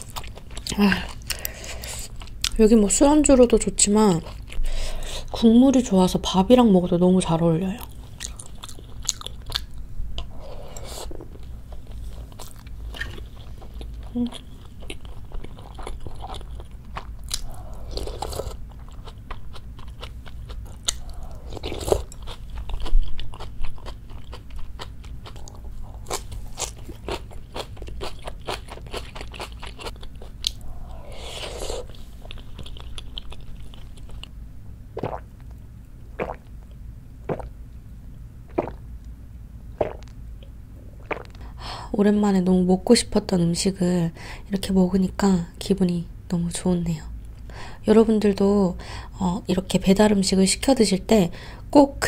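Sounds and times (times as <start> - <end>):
wet chewing and biting: 8.2 - 34.4
slurping: 36.2 - 36.5.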